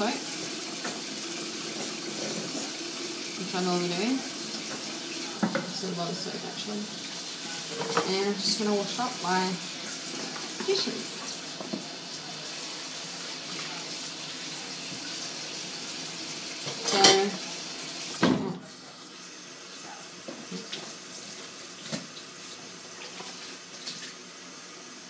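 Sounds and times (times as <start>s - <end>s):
tap running into sink: 4.6s - 5.8s, 11.5s - 11.9s
dishes clattering: 4.7s - 5.8s, 7.6s - 8.7s, 16.6s - 17.4s
dish clinking: 7.7s - 8.4s, 16.6s - 17.4s.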